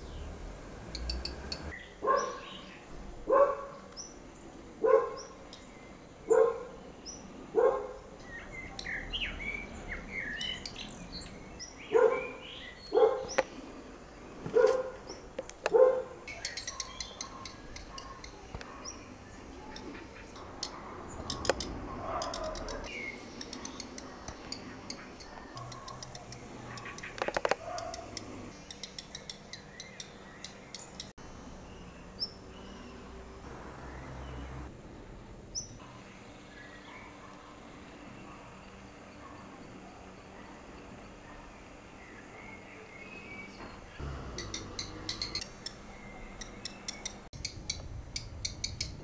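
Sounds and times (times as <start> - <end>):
bird ticking calls: 0.0 - 2.7, 15.1 - 31.1, 43.9 - 49.0
faint bird chirps: 16.3 - 31.1, 38.0 - 47.8.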